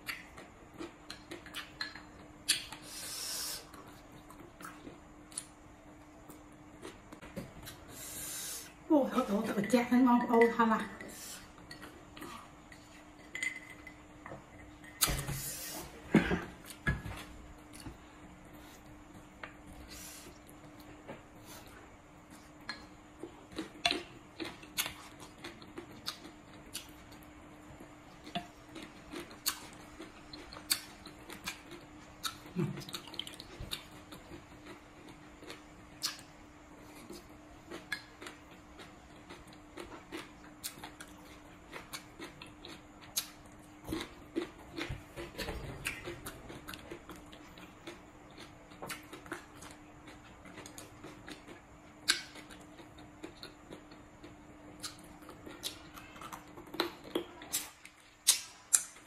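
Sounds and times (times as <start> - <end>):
faint steady hum: 0.0 - 59.0
crunchy chewing: 19.8 - 59.0.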